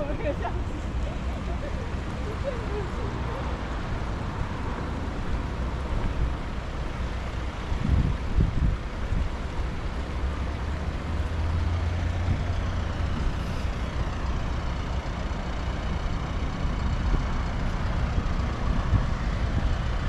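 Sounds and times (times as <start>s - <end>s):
heavy vehicle engine droning: 0.0s - 20.0s
road traffic rumble: 0.0s - 20.0s
wind buffeting microphone: 7.4s - 9.8s, 16.0s - 20.0s.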